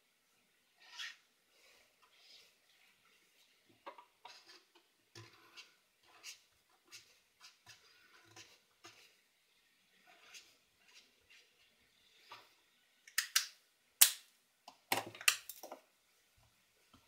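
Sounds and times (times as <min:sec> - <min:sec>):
marker scratching on paper: 0:00.8 - 0:01.2, 0:04.2 - 0:09.1, 0:10.1 - 0:11.6.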